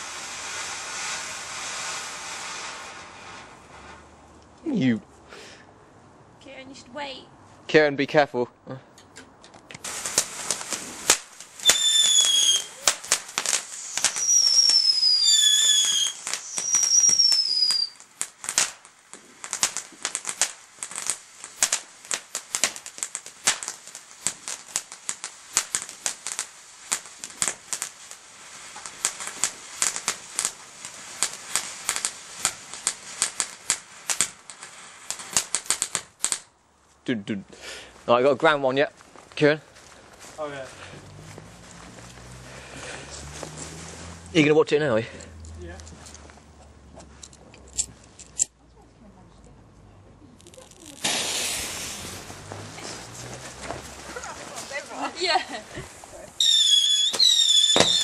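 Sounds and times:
firework whistles sliding down: 0.0 - 4.1, 9.8 - 18.8, 23.5 - 35.5, 41.1 - 44.5, 50.5 - 58.0
firework crackling: 0.0 - 5.7, 9.4 - 48.6, 50.3 - 58.0.

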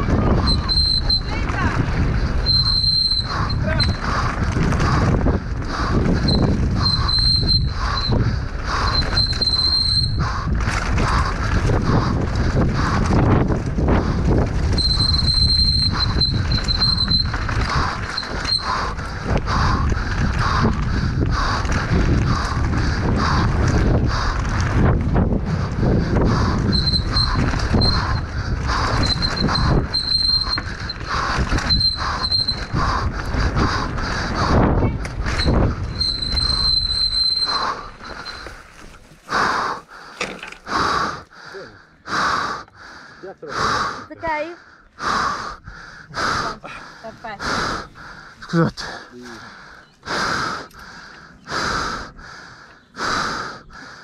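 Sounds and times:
bike tyres and frame rattling: 0.0 - 41.4
wind buffeting: 0.0 - 54.0
disc brakes squealing: 0.2 - 1.5, 2.4 - 4.0, 6.2 - 8.2, 8.8 - 10.2, 14.7 - 18.9, 26.6 - 32.8, 35.3 - 38.6.

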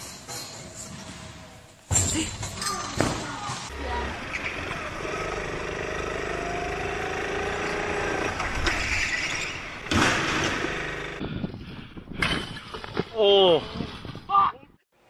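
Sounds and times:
karts colliding: 2.9 - 11.2
go-kart engine running: 3.7 - 11.2.

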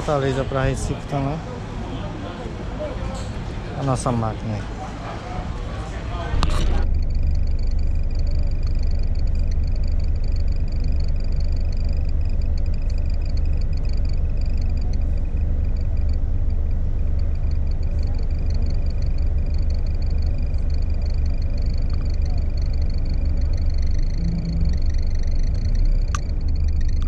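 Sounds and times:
coach engine idling: 0.0 - 27.0
night animals trilling chorus: 6.8 - 27.0.

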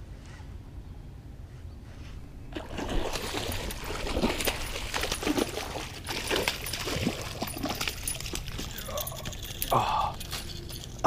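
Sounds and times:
fish splashing at water surface: 2.5 - 8.7.

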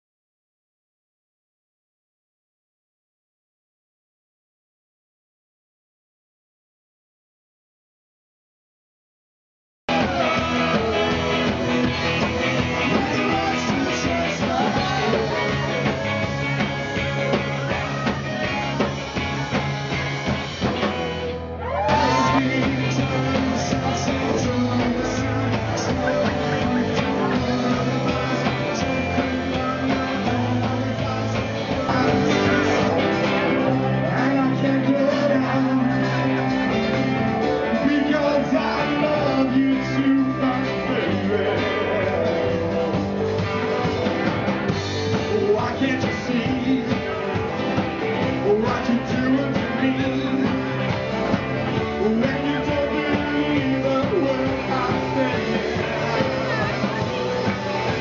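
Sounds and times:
person singing: 9.9 - 18.6, 20.6 - 43.8, 45.0 - 58.0
electric guitar: 9.9 - 58.0
rock and roll band playing: 9.9 - 58.0.

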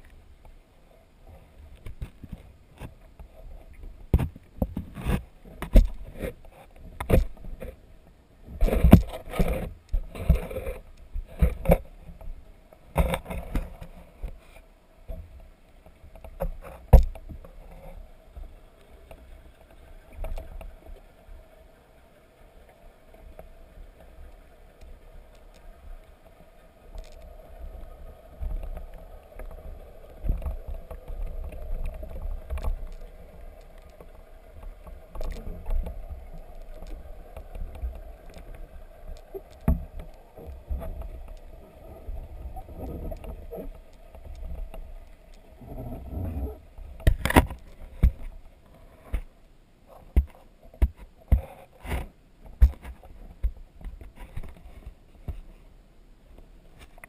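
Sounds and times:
muffled underwater rumble: 0.0 - 50.7
sharp knocks and clicks: 50.1 - 54.6.

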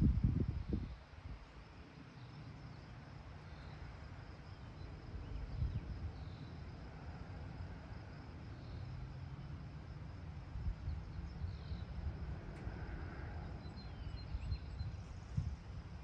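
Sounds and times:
wind buffeting microphone: 0.0 - 1.5, 5.0 - 6.2, 10.4 - 16.0
faint insect chorus: 0.0 - 16.0.

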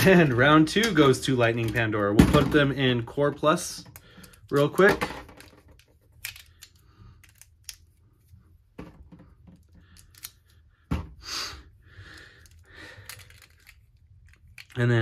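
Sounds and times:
plastic toy parts clicking: 3.9 - 7.8, 9.6 - 10.4, 12.4 - 15.0.

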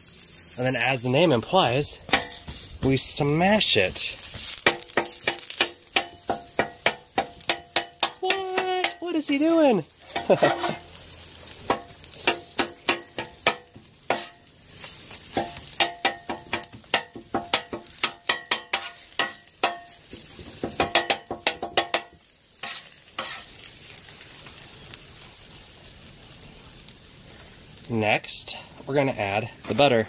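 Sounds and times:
food sizzling: 0.0 - 30.0
metal spatula clacking on griddle: 2.0 - 2.7, 4.3 - 9.4, 10.0 - 10.8, 11.6 - 14.5, 15.2 - 23.6.

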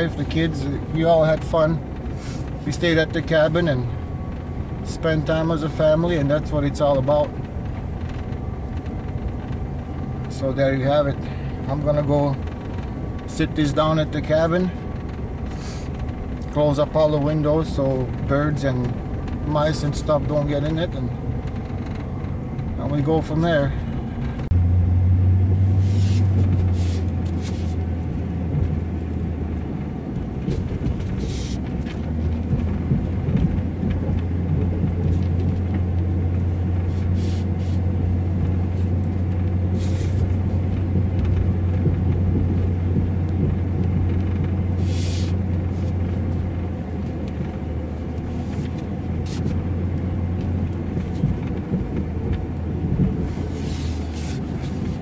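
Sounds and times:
vehicle engine low hum: 0.0 - 55.0.

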